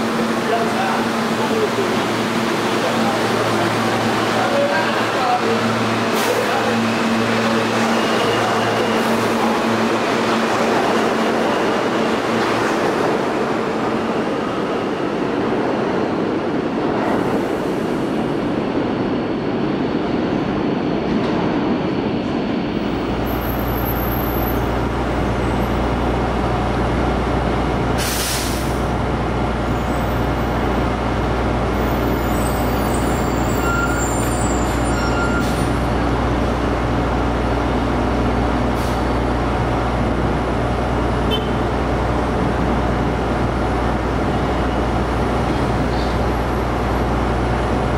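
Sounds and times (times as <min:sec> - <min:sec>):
subway train running: 0:00.0 - 0:47.9.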